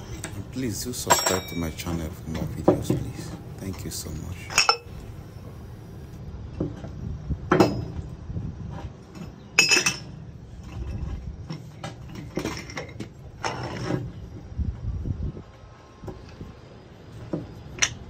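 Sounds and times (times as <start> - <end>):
metal clinks and knocks: 0.0 - 5.0, 7.5 - 8.1, 8.7 - 14.4.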